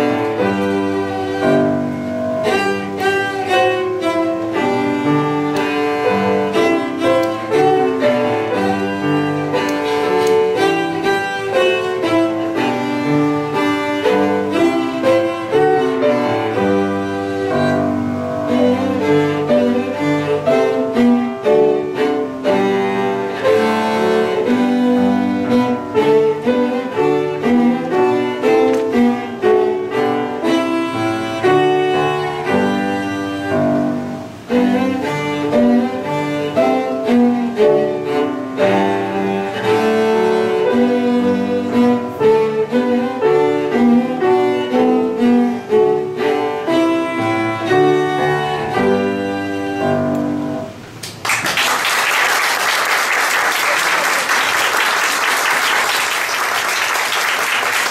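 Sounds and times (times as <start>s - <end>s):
cello playing classical piece: 0.0s - 50.9s, 54.7s - 57.9s
piano accompaniment: 0.0s - 57.9s
audience applauding: 51.0s - 57.9s.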